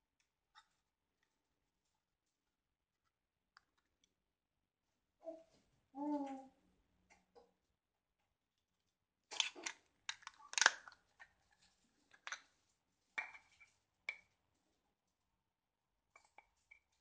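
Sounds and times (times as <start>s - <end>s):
packaging clicks and rustles: 9.3s - 12.4s.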